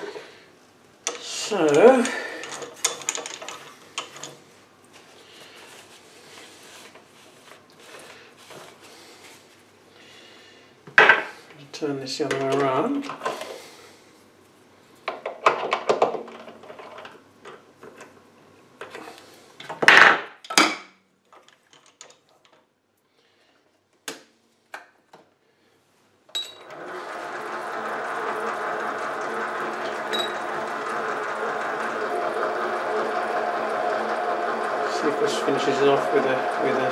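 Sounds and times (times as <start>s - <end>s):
lathe spindle running: 1.1s - 4.3s, 26.6s - 36.9s.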